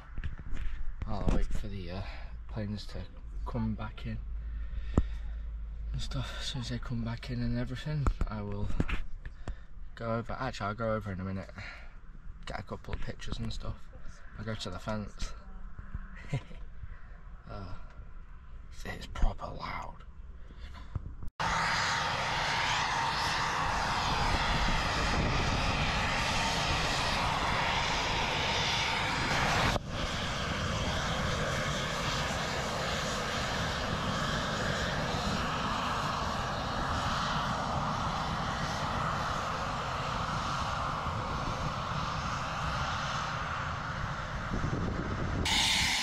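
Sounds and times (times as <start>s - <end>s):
jet engine roar: 21.4s - 46.0s.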